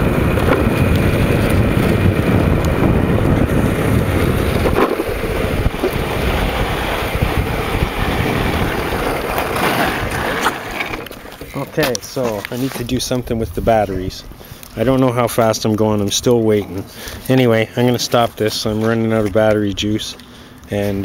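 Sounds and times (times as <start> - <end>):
wind buffeting microphone: 0.0 - 11.5, 12.7 - 16.6.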